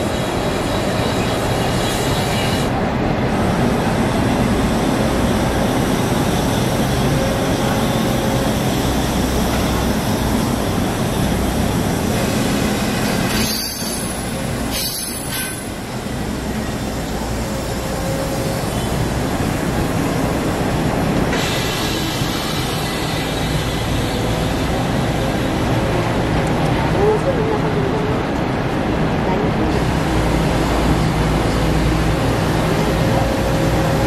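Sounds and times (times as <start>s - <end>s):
train wheels rumbling on rails: 0.0s - 34.0s
faint wheel squeal: 13.3s - 15.8s.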